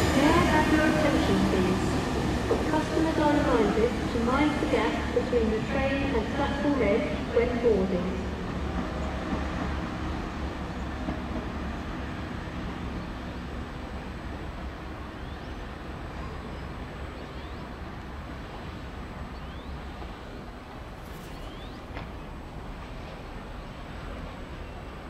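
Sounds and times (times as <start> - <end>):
diesel train rumbling: 0.0 - 25.0.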